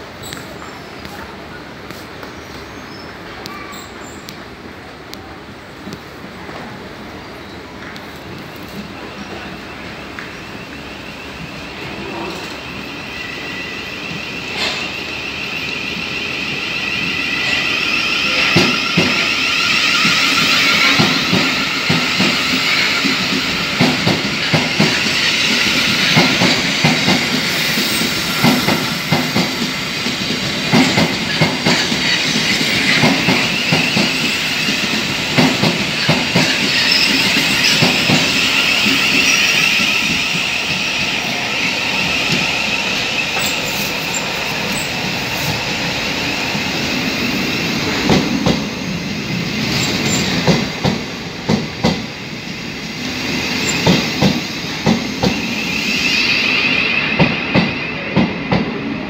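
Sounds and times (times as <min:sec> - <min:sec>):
train high-pitched whine: 0:07.2 - 0:59.0
train wheels clacking: 0:13.4 - 0:52.2, 0:53.0 - 0:58.8.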